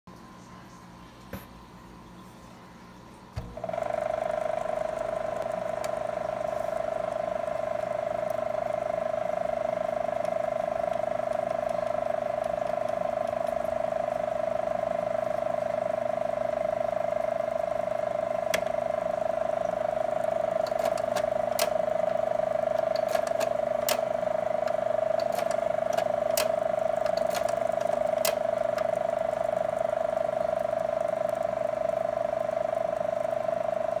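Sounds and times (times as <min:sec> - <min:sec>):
projector cooling fan hum: 0:00.1 - 0:34.0
sharp mechanical clicks: 0:20.2 - 0:31.6.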